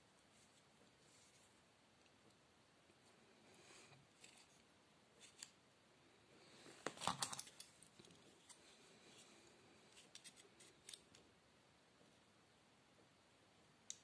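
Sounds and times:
hand tool clicks and rattles: 7.0s - 7.7s.

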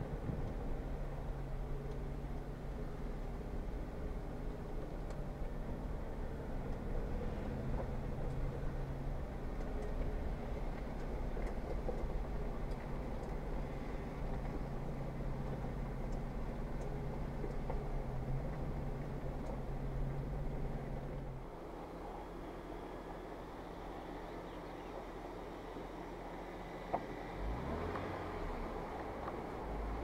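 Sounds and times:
car engine at low crawl: 0.0s - 30.0s
drone of drivetrain and tyres: 0.0s - 30.0s
faint clicks and rattles: 7.7s - 21.3s.

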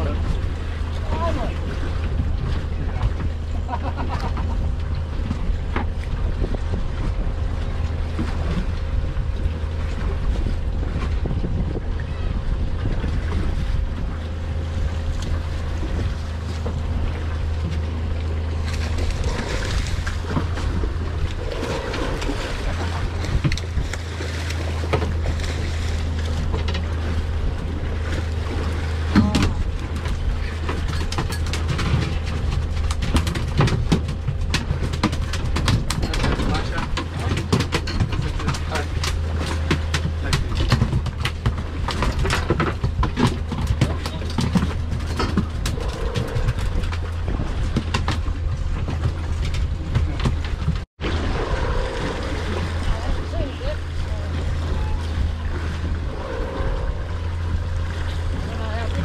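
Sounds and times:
wind on the microphone: 0.0s - 39.3s, 39.9s - 59.0s
boat engine idling: 0.0s - 59.0s
water around the hull: 0.0s - 59.0s
fish splashing: 51.0s - 59.0s.

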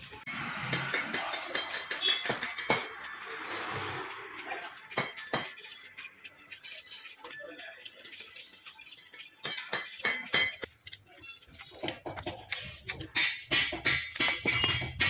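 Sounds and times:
metal tools clinking and knocking: 6.4s - 15.0s.

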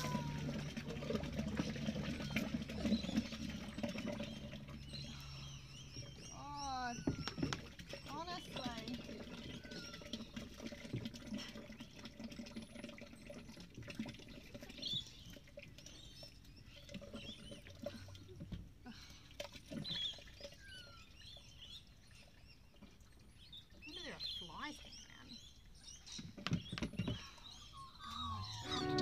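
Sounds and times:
liquid sloshing and splashing: 0.0s - 6.3s, 6.9s - 23.8s
birds chirping: 0.0s - 10.8s, 19.7s - 29.0s.

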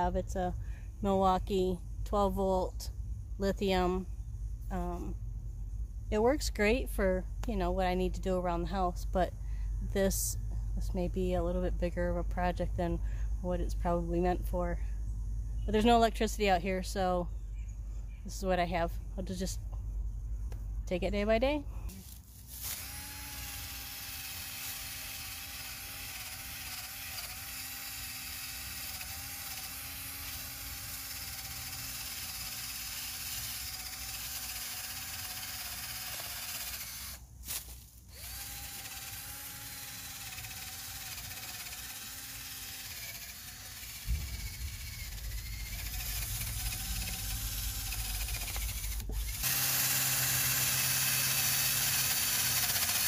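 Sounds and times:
wire brush rasping on bark: 21.9s - 53.0s
drill motor whine: 22.6s - 37.2s, 38.1s - 53.0s.

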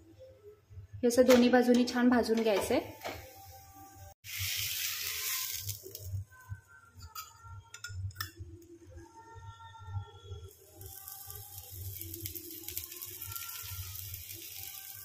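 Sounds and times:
dough sizzling in oil: 4.2s - 6.2s, 10.5s - 15.0s.

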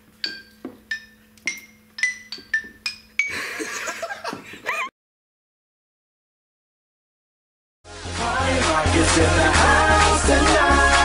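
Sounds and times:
xylophone notes: 0.2s - 3.7s.

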